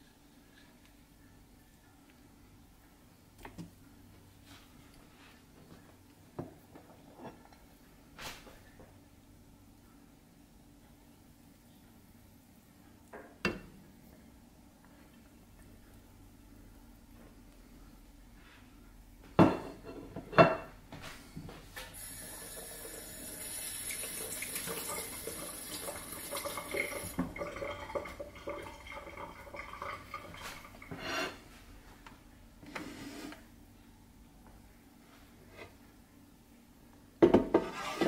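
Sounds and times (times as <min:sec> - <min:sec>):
running water: 0:22.0 - 0:31.0.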